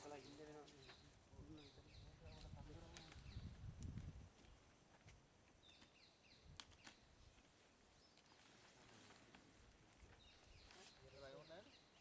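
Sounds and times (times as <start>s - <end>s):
faint bird chirps: 10.0s - 12.0s.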